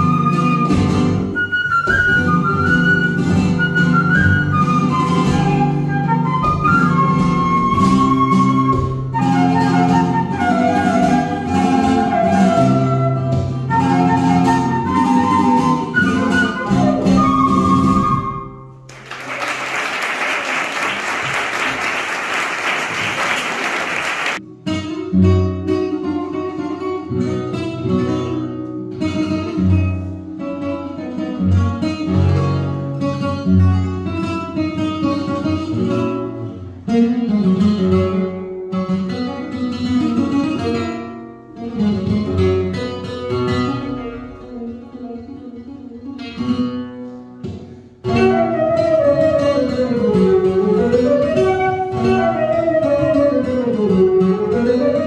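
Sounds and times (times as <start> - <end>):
flute: 0.0 - 18.9, 48.0 - 55.0
guitar plucking and strumming: 0.0 - 19.0, 24.4 - 55.0
applause: 18.9 - 24.4.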